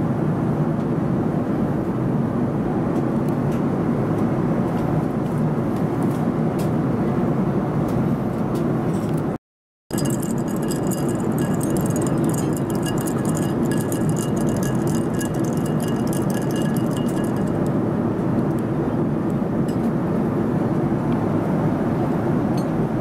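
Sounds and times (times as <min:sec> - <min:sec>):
ice cubes clinking in glass: 0:09.9 - 0:17.8.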